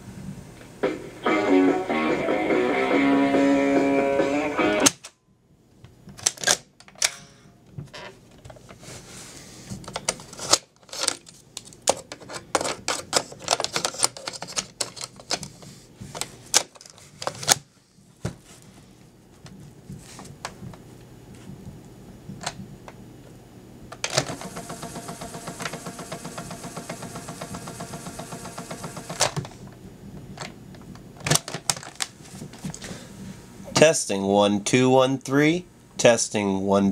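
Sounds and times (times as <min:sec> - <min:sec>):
handling of plastic toy: 0:09.8 - 0:17.6
tape motor whirring: 0:24.2 - 0:29.4.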